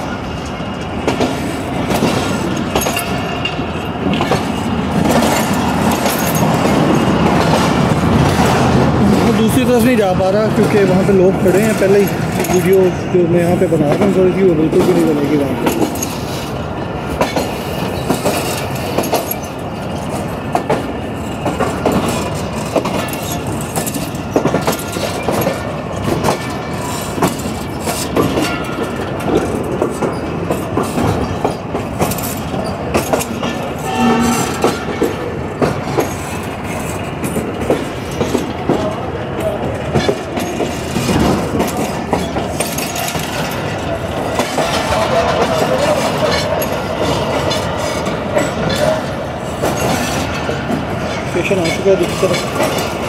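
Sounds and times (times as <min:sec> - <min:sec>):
train wheels clattering on rails: 0:00.0 - 0:53.0
short pitched tone: 0:33.8 - 0:34.9.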